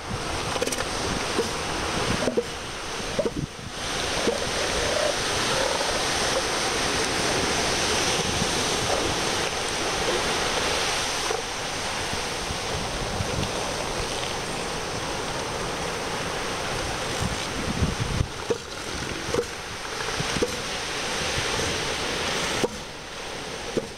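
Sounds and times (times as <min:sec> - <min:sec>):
ocean surf rushing: 0:00.0 - 0:23.9
wind on microphone: 0:00.0 - 0:23.9
elephant seals calling: 0:02.2 - 0:10.6.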